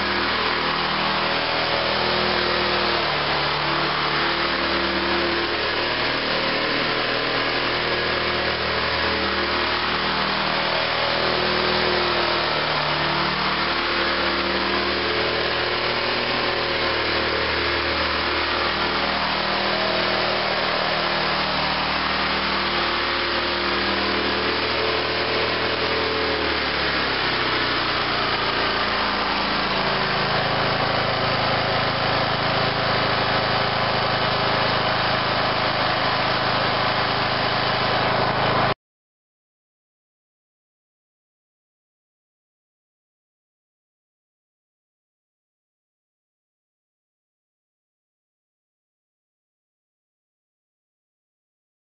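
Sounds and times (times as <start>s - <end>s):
small engine running: 0.0s - 38.8s.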